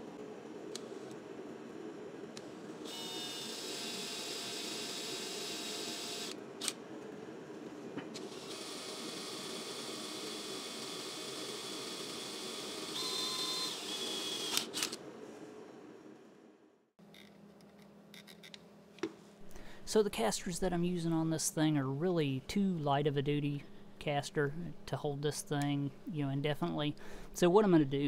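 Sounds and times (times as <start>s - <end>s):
drill boring through metal: 2.9s - 6.4s, 8.3s - 15.0s
drill clicks: 11.6s - 15.0s.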